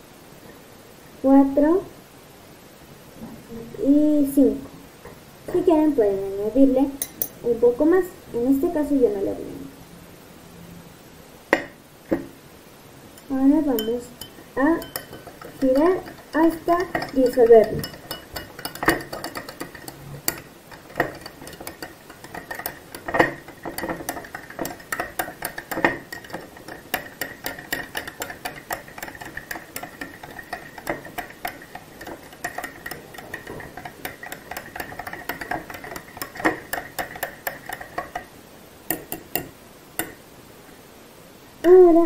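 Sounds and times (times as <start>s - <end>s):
spoon clinking on glass: 7.0s - 7.4s, 13.2s - 38.3s, 38.9s - 40.2s
teaspoon stirring in glass: 13.2s - 38.3s, 38.9s - 40.2s.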